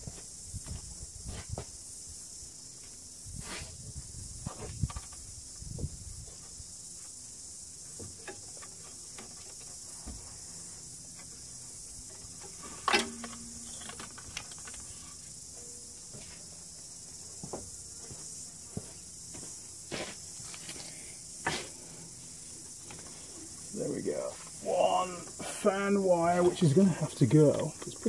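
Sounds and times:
steady high hiss: 0.0s - 28.0s
loud clunk: 12.8s - 14.1s.

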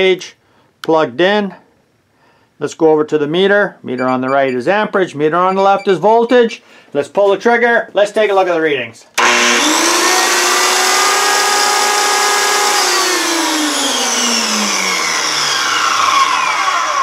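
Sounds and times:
circular saw running and winding down: 9.2s - 17.0s.

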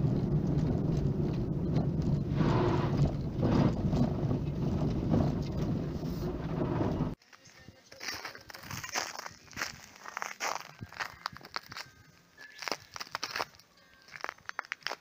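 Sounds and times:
car engine and tyre rumble: 0.0s - 7.2s
road noise surges: 0.0s - 7.2s.

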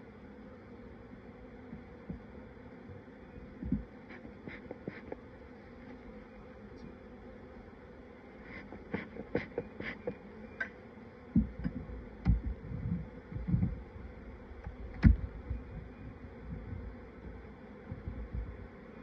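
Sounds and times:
honeybees buzzing: 0.0s - 19.0s
hive tool knocking on wooden frames: 1.6s - 2.3s, 3.6s - 5.3s, 8.5s - 13.9s, 14.6s - 18.8s.

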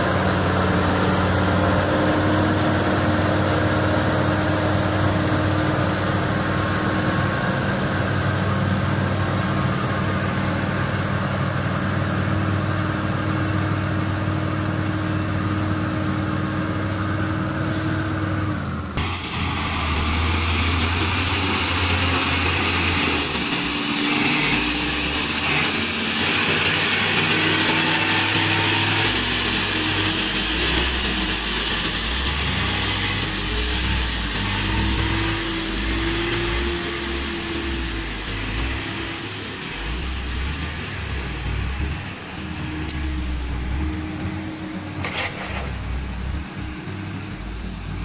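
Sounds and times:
truck diesel engine running: 0.0s - 48.0s.

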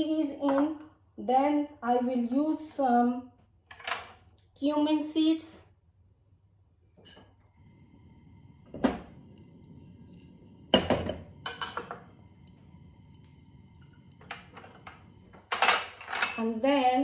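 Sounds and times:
faint low hum: 4.4s - 17.0s.

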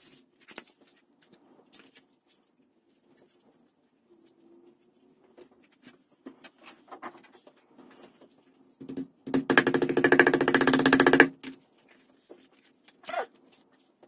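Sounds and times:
wooden mallet pounding leather: 8.8s - 11.6s.

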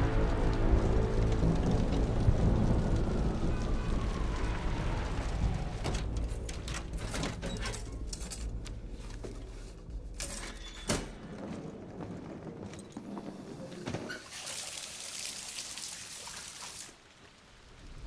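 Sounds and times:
low city traffic rumble: 0.0s - 10.2s
keys jingling: 6.9s - 8.8s.

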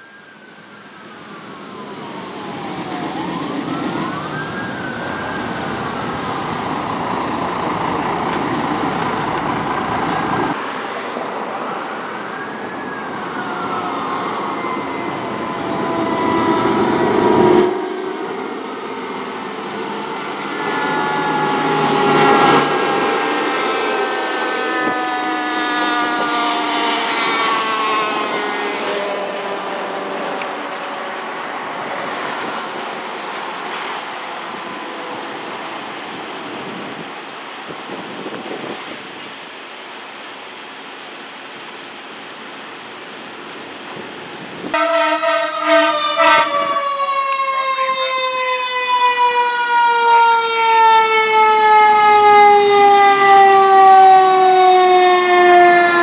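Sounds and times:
electronic wail siren: 0.0s - 7.7s, 11.6s - 31.0s, 44.8s - 56.0s
fire truck engine: 0.0s - 36.9s, 44.8s - 56.0s.

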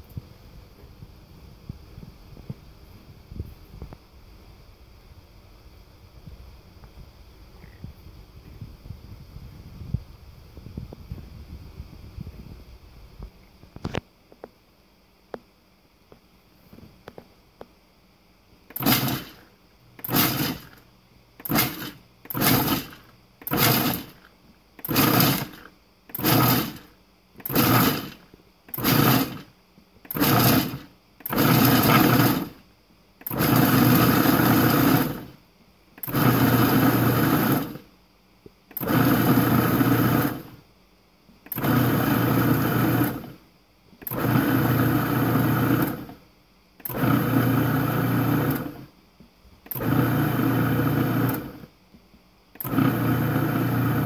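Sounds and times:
food processor chopping nuts: 18.7s - 19.4s, 20.0s - 20.8s, 21.4s - 29.5s, 30.1s - 32.6s, 33.2s - 35.3s, 36.0s - 37.8s, 38.7s - 40.5s, 41.5s - 43.3s, 44.0s - 46.1s, 46.8s - 48.8s, 49.7s - 51.6s, 52.6s - 54.0s.

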